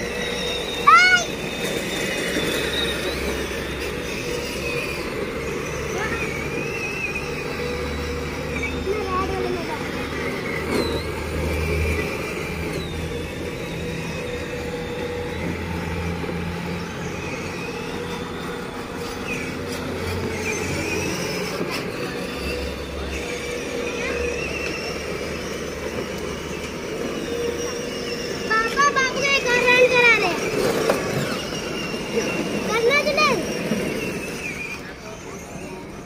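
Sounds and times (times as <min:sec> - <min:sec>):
low motor hum: 0:00.0 - 0:36.0.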